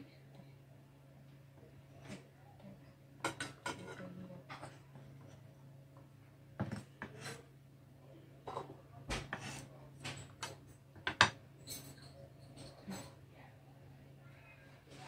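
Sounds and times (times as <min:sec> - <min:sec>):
knife scraping cutting board: 0:07.0 - 0:07.5, 0:09.3 - 0:09.7.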